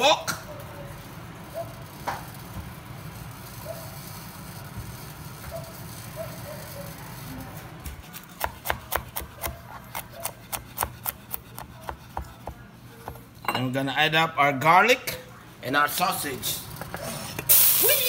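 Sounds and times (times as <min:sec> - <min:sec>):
knife chopping on plastic board: 0:07.9 - 0:13.2.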